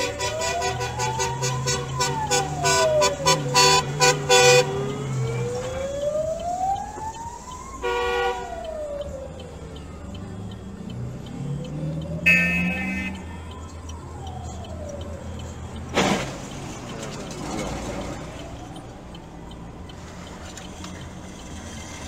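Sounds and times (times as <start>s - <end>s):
loud horn blasts: 0.0s - 4.7s, 7.8s - 8.5s, 12.2s - 13.2s
fire engine siren wailing: 0.0s - 20.6s.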